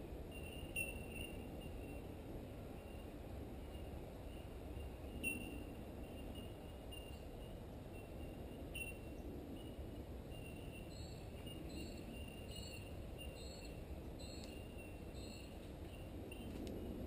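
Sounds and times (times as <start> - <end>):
steady low hiss of creek: 0.0 - 17.0
small high chirps: 3.7 - 16.6.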